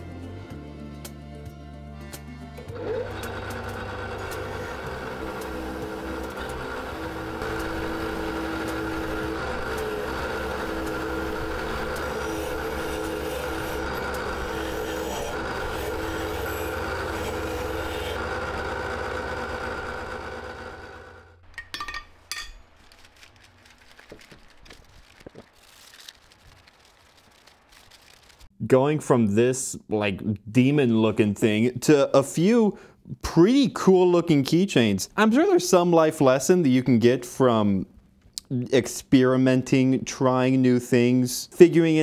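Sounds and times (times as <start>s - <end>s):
grinding wheel on steel: 2.6s - 21.4s
handling clicks and rubbing: 21.5s - 28.5s.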